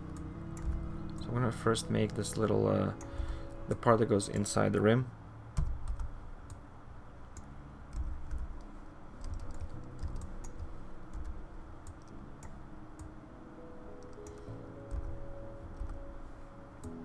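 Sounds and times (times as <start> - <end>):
keyboard and mouse clicks: 0.0 - 1.3, 2.0 - 3.2, 7.3 - 13.1, 14.0 - 16.0.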